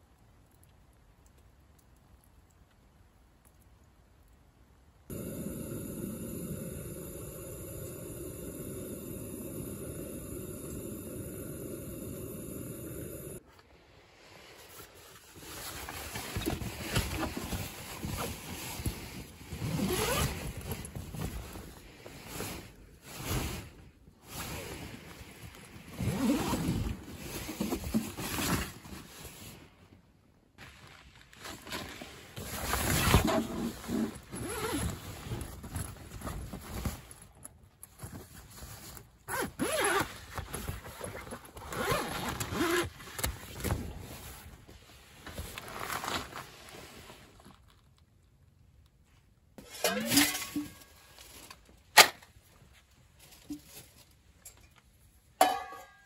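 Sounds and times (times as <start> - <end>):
tent fabric rustling: 14.2 - 48.0
zipper pulled: 15.8 - 21.4, 25.8 - 29.1, 31.5 - 36.0, 39.3 - 44.3.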